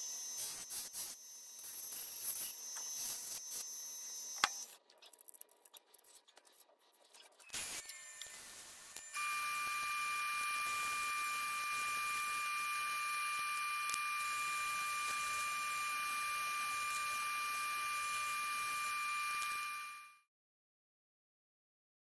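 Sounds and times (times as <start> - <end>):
wood lathe hissing and whining: 7.6 - 20.1.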